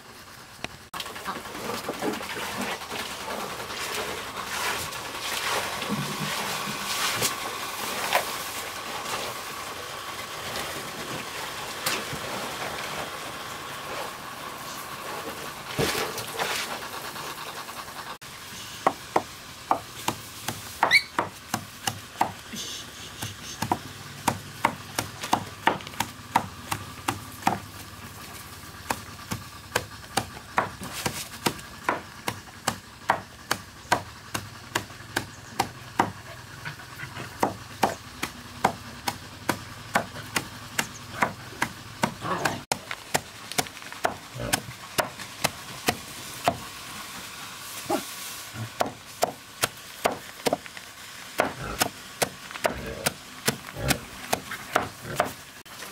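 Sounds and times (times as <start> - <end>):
cleaver chopping on wooden board: 18.8 - 22.4, 23.2 - 27.7, 28.9 - 36.2, 37.4 - 46.6, 48.8 - 50.6, 51.4 - 55.4.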